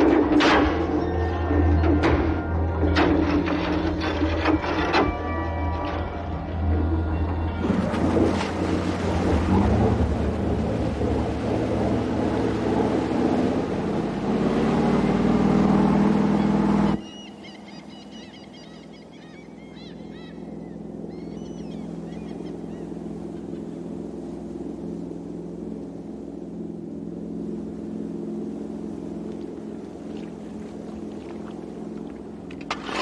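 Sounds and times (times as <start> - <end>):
engine running loudly: 0.0 - 17.0
low hum: 0.0 - 33.0
bird chirps: 16.4 - 23.7.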